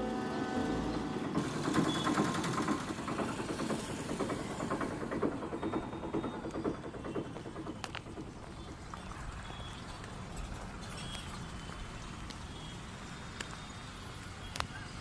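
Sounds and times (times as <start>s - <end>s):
small engine running: 0.0s - 11.9s
fast even engine knocks: 0.6s - 9.9s.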